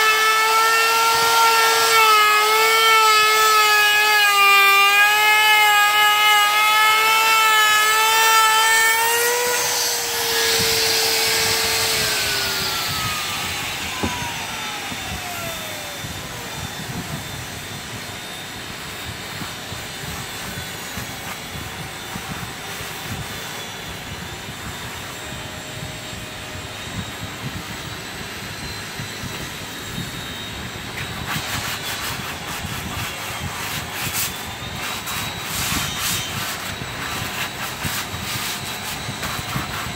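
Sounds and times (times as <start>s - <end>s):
router whining: 0.0s - 39.9s
sandpaper rubbing on wood: 19.3s - 23.5s, 30.9s - 39.9s.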